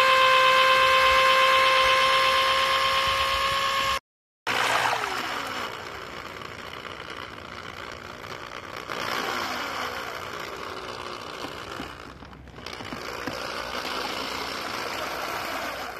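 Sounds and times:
electric drill mixing paddle churning: 0.0 - 15.9.

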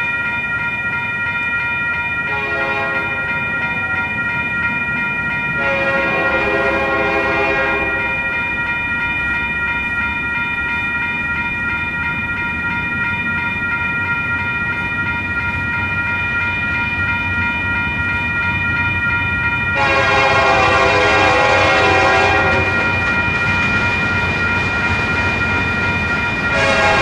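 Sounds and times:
low rumble of train: 0.0 - 27.0
locomotive air horn chord: 2.3 - 3.2, 5.6 - 8.1, 19.8 - 22.8, 26.5 - 27.0.

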